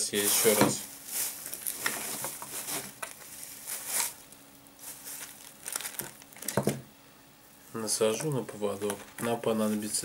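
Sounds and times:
plastic bag rustling and crinkling: 0:00.0 - 0:06.8.

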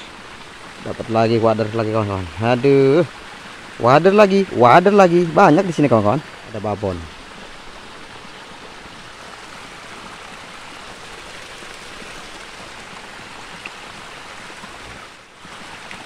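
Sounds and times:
creek flowing over rocks: 0:00.0 - 0:16.0.

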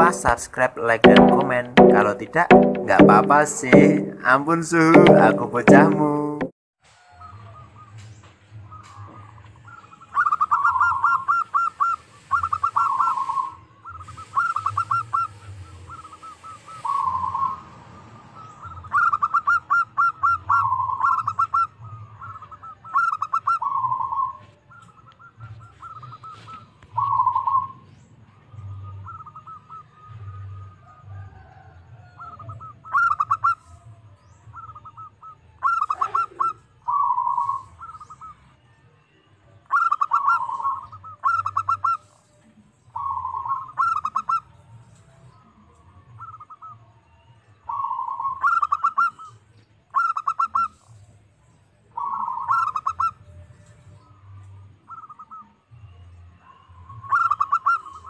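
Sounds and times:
dove cooing: 0:35.6 - 0:37.5.

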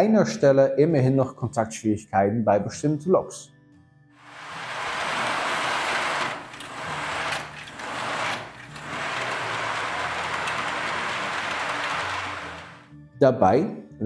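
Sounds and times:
model train rolling on track: 0:04.2 - 0:12.9.

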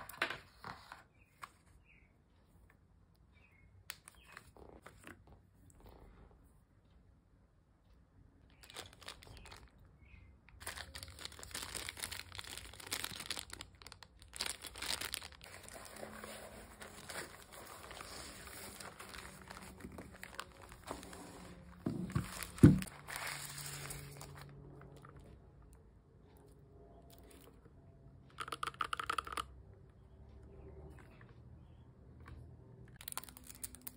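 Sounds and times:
plastic packaging crinkling: 0:08.5 - 0:09.9, 0:10.5 - 0:24.6, 0:33.0 - 0:33.9.

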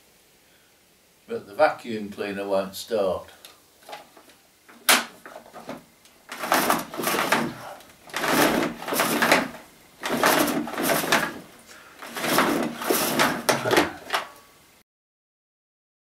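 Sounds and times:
cord pulled from reel rattling: 0:05.2 - 0:14.3.

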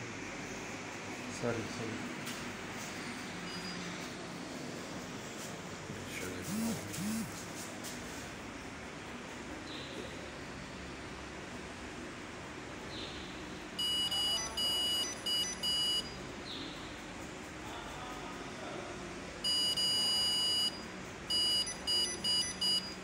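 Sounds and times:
medical device beeps: 0:03.5 - 0:03.9, 0:13.8 - 0:16.2, 0:19.4 - 0:23.0
long beep: 0:13.8 - 0:16.2, 0:19.4 - 0:23.0.

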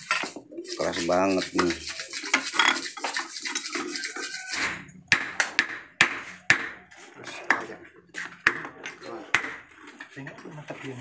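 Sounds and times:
metal parts scraping: 0:01.4 - 0:04.7
sharp knocks on metal: 0:05.1 - 0:06.8.

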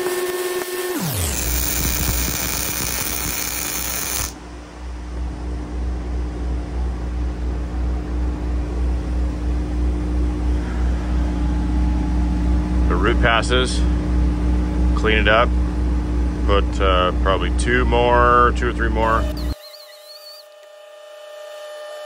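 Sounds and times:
welding arc crackling and hissing: 0:00.0 - 0:04.4.

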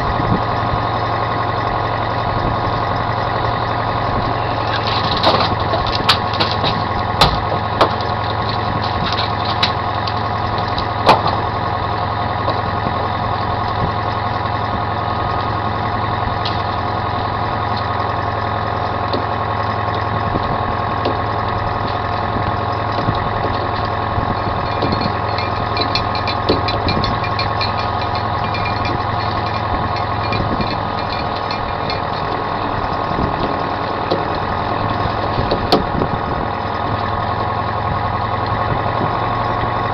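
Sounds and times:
boat engine droning: 0:00.0 - 0:39.9
sharp knocks and clicks: 0:04.8 - 0:11.4, 0:24.7 - 0:34.4.

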